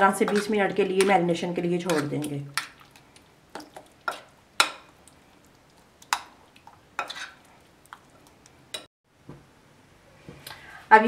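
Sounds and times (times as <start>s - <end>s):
spoon stirring food: 0.1s - 8.9s.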